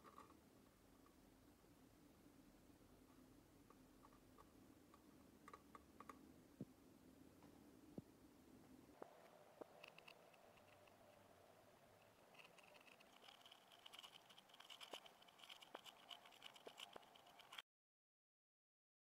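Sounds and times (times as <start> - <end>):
faint high rapid rattle: 9.0 - 17.6.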